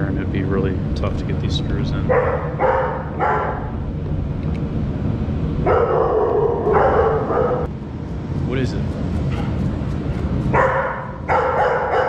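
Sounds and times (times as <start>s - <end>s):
dog barking: 2.1s - 3.8s, 5.6s - 7.7s, 10.5s - 12.0s.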